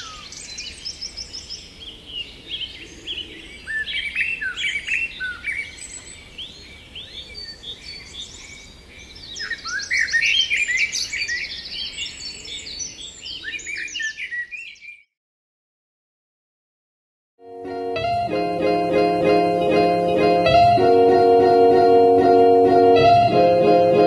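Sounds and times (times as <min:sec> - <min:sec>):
songbirds singing: 0:00.0 - 0:15.1.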